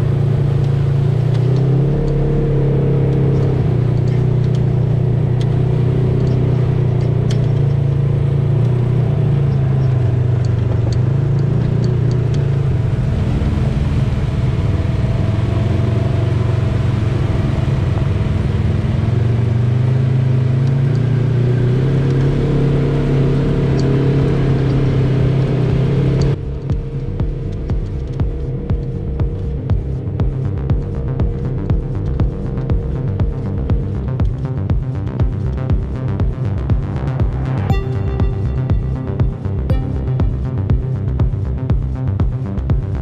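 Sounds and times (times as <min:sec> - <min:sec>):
off-road vehicle engine running: 0:00.0 - 0:43.0.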